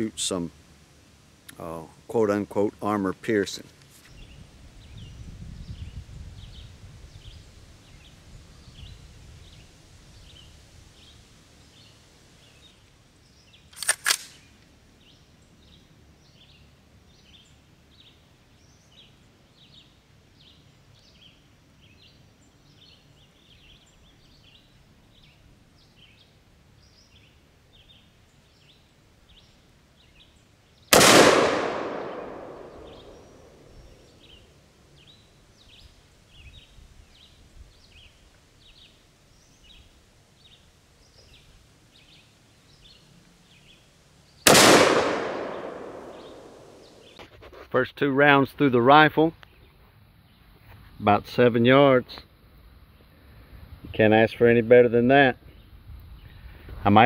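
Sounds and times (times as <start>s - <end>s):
rifle shot with echo: 13.8s - 14.4s, 30.9s - 33.9s, 44.5s - 47.2s.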